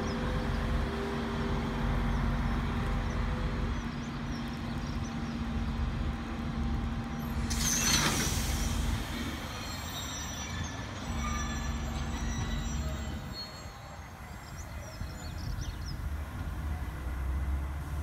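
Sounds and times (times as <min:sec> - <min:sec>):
locomotive engine hum: 0:00.0 - 0:18.0
short loud hiss: 0:07.4 - 0:09.5.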